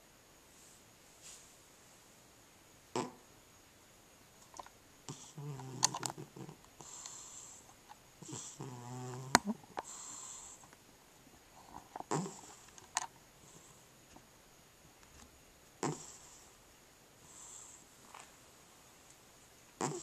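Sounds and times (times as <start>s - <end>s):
cat snoring: 2.9s - 3.2s, 5.1s - 10.6s, 11.6s - 12.7s, 15.8s - 16.6s, 17.2s - 17.9s, 19.8s - 20.0s
cat wheezy breaths: 9.8s - 10.7s.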